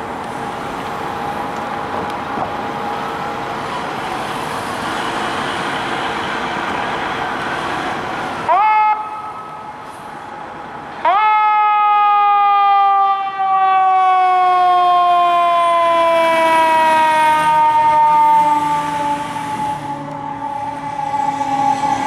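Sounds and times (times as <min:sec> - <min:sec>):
mechanical siren wailing: 0:11.1 - 0:22.0.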